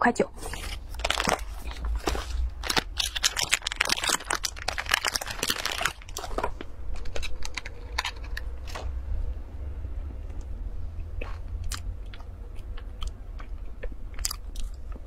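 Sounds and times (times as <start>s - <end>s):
plastic wrapper crinkling and tearing: 0.4s - 8.8s.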